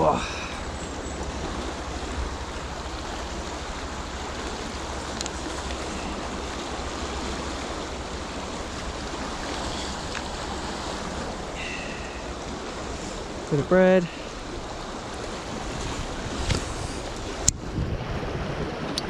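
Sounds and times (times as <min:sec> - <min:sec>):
river water rushing: 0:00.0 - 0:19.0
faint clicks: 0:05.1 - 0:05.8.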